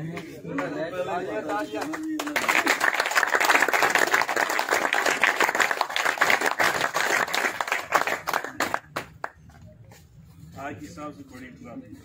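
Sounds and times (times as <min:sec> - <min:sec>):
people clapping: 0:00.0 - 0:09.6.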